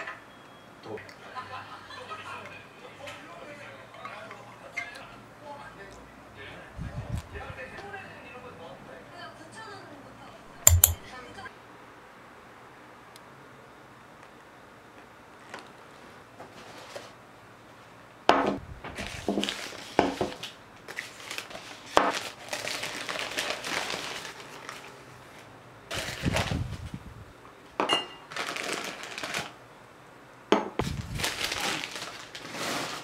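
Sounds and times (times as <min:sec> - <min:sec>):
newspaper rustling and crinkling: 0:18.9 - 0:26.8, 0:28.3 - 0:29.6, 0:30.8 - 0:33.0.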